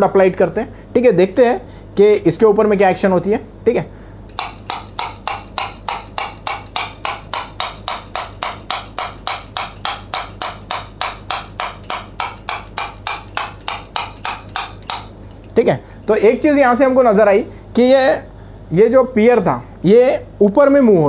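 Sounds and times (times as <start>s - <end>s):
metal object knocking on ruler: 4.3s - 15.5s.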